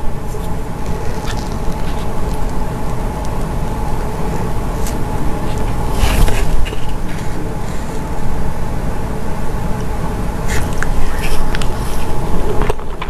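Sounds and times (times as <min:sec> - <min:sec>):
faint hum: 0:00.0 - 0:13.0
low background rumble: 0:00.0 - 0:13.0
plastic spoon scooping and scraping: 0:00.3 - 0:02.6.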